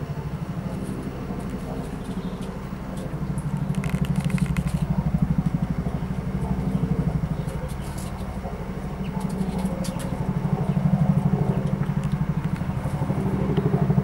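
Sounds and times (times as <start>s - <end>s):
engine running with fast throb: 0.0s - 14.0s
light clicks and crackles: 0.7s - 5.6s.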